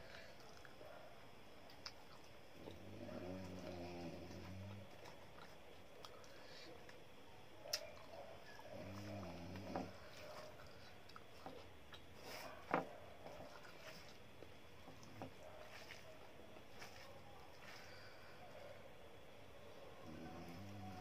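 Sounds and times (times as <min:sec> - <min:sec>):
chewing: 0:00.0 - 0:18.8
fingers mixing rice on steel plate: 0:10.0 - 0:18.1.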